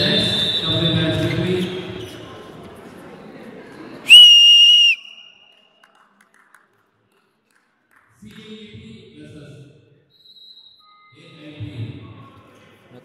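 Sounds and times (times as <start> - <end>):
high-pitched whistle blast: 4.1 - 5.4.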